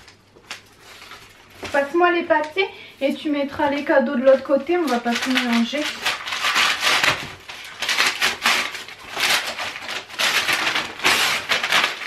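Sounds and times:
paper tearing and crumpling: 0.0s - 1.9s, 4.7s - 12.0s.

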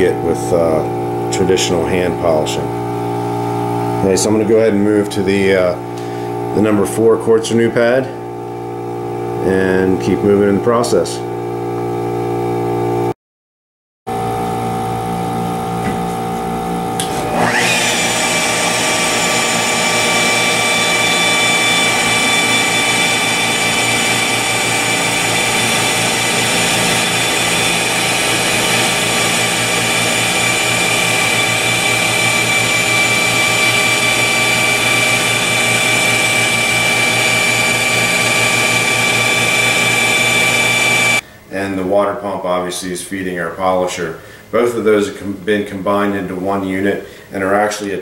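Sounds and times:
polisher high whine: 14.2s - 41.2s.

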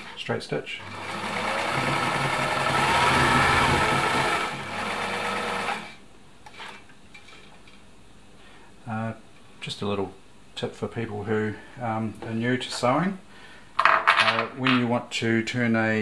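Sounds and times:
sewing machine stitching: 0.8s - 6.8s.

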